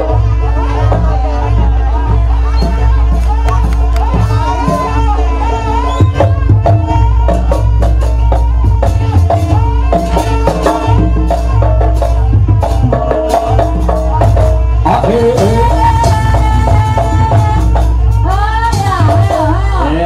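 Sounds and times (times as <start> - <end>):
percussion ensemble music: 0.0 - 20.0.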